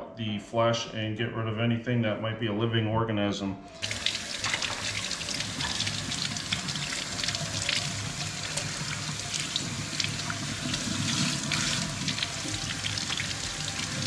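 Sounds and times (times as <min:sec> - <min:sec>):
faucet running into steel sink: 0:03.8 - 0:14.0.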